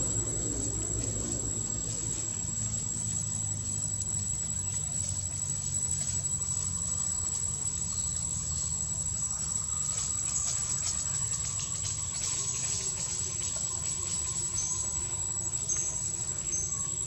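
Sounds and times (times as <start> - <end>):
high-pitched whine: 0.0 - 17.0
steady low rumble: 0.0 - 17.0.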